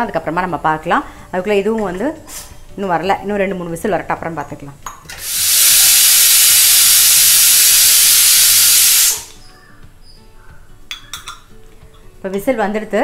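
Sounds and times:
pressure cooker whistle hissing: 5.1 - 9.5.

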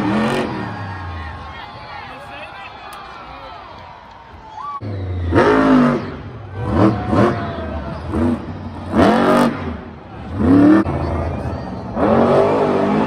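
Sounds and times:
truck engine revving hard: 0.0 - 1.4, 4.8 - 13.0.

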